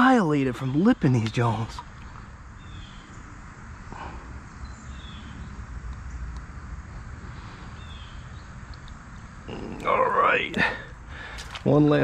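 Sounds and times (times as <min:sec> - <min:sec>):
faint bird chirps: 0:00.0 - 0:06.4, 0:07.4 - 0:10.0.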